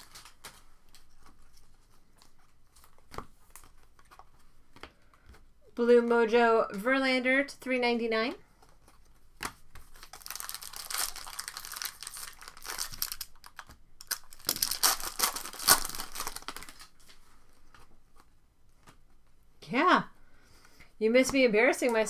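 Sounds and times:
cards and packaging rustling: 0.0 - 5.6, 8.5 - 19.0.

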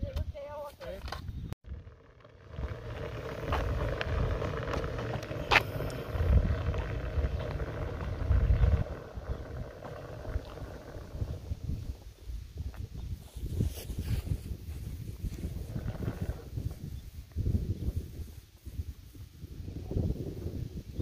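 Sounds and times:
small motor humming: 1.6 - 11.8
wind on microphone: 2.4 - 21.0.

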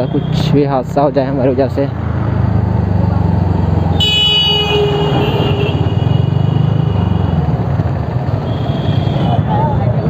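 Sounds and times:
road and wind noise: 0.0 - 10.0
vehicle horn honking: 3.9 - 7.5, 8.4 - 9.4.

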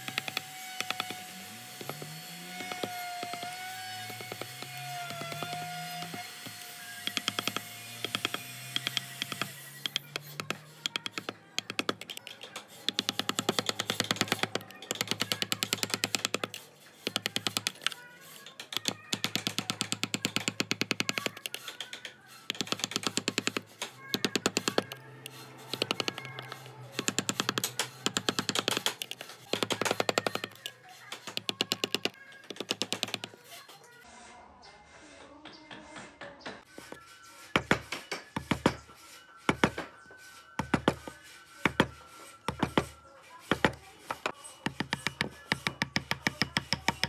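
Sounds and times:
carving tool tapping wood: 0.0 - 33.3, 43.5 - 47.0
background music: 0.0 - 47.0.

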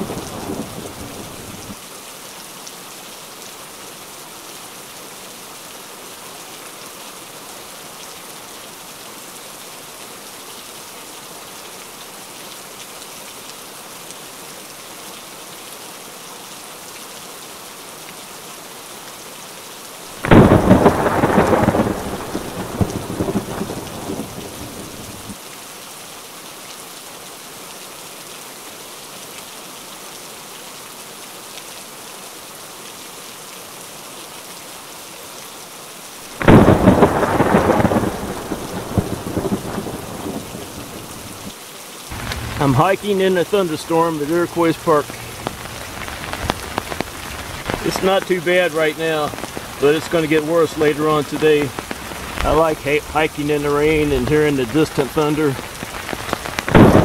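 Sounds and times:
thunder peal: 0.0 - 1.7, 20.2 - 25.4, 36.4 - 41.5, 42.1 - 43.6, 56.5 - 57.0
steady rain: 0.0 - 57.0.

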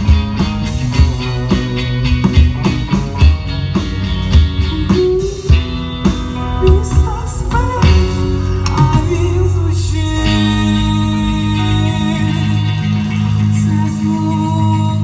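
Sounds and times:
electric guitars: 0.0 - 15.0
rock band playing: 0.0 - 15.0
drum kit hits: 5.5 - 10.0.

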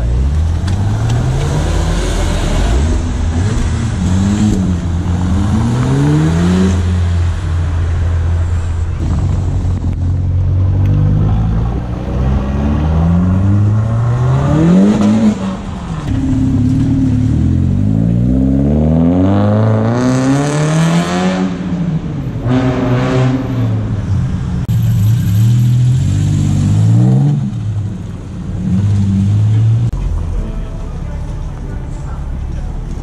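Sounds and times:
car engines revving: 0.0 - 33.0.

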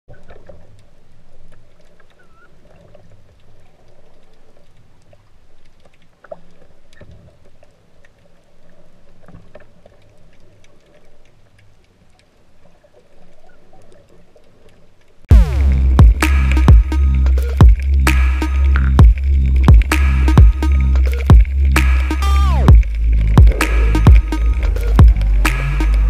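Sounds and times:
faint clicks: 0.1 - 15.2
muffled underwater water noise: 0.1 - 26.0.

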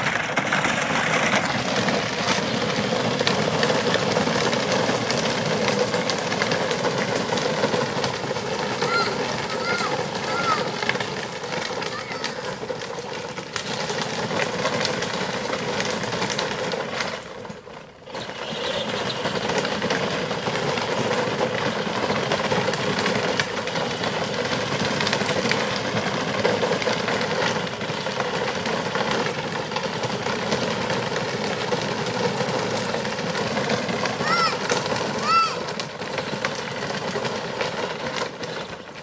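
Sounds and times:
plastic wheels crunching gravel: 0.0 - 39.0.

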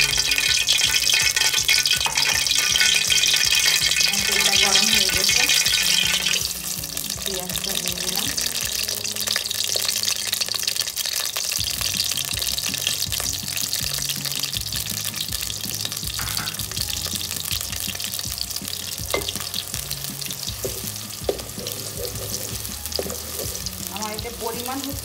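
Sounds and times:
spatula stirring in a pot: 0.0 - 7.1, 18.4 - 23.9
onions sizzling in hot oil: 0.0 - 25.0.

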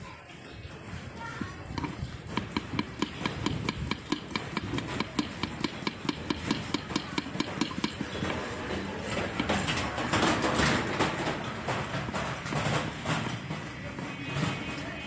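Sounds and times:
knife chopping on wooden board: 1.8 - 8.4.

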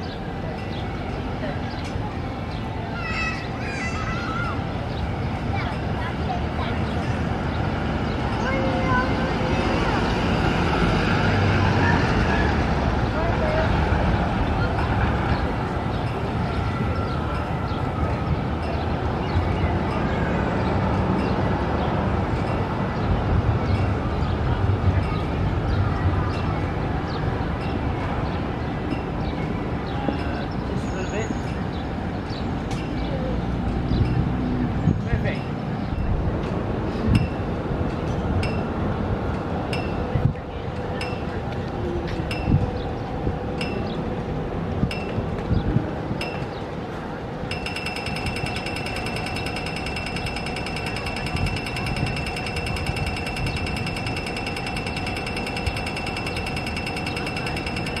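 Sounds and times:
city street traffic rumble: 0.0 - 58.0
trams going by: 0.0 - 58.0
crossing signal electronic ticking: 47.5 - 58.0.

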